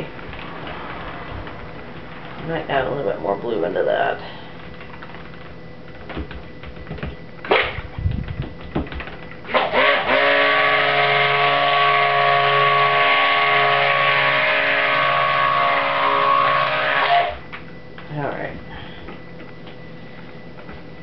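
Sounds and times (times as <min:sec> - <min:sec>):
stick blender running: 0:09.4 - 0:17.5.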